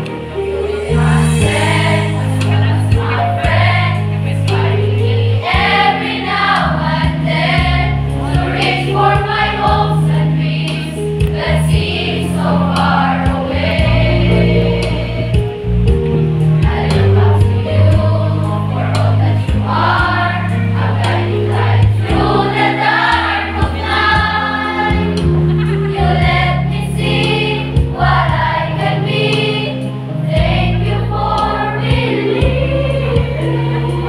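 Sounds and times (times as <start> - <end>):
mixed choir singing: 0.0 - 15.8, 16.4 - 34.0
sustained low accompaniment notes: 0.0 - 34.0.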